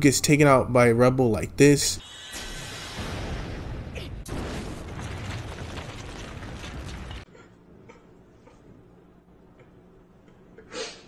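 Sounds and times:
rumbling explosion: 2.1 - 7.3.

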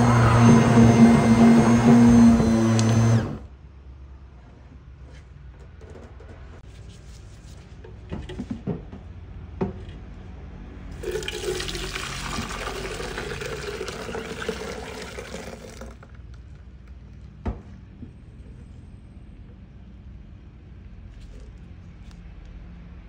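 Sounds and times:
click: 2.7 - 3.0
liquid pouring into metal strainer: 11.0 - 16.0.

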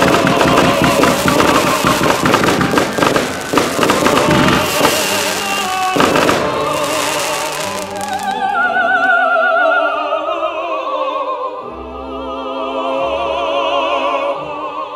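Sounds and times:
firework bang and crackle: 0.0 - 8.4
operatic singing: 0.0 - 14.9.

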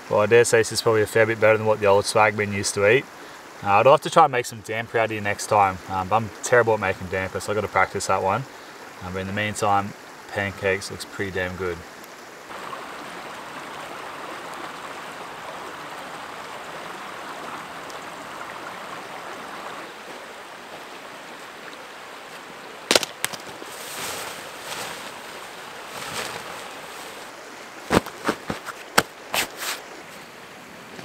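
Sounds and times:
water rushing over rocks: 12.5 - 31.0.

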